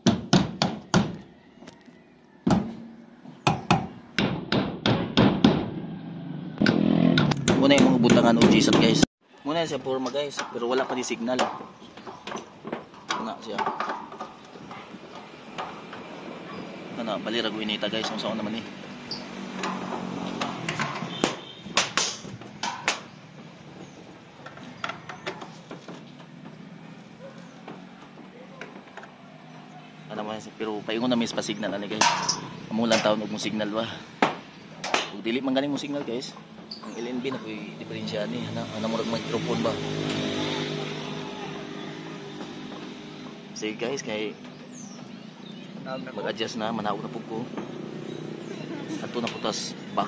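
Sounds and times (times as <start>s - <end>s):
hammer striking wooden plank: 3.4s - 5.7s, 6.6s - 9.0s, 19.6s - 23.1s
sharp knocks and clatters: 10.0s - 16.1s, 19.5s - 26.8s, 31.2s - 33.2s, 34.2s - 35.2s.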